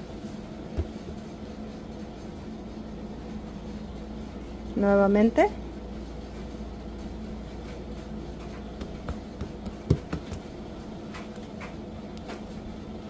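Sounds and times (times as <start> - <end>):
hands patting dough: 8.4 - 11.3
knock on countertop: 8.8 - 10.4.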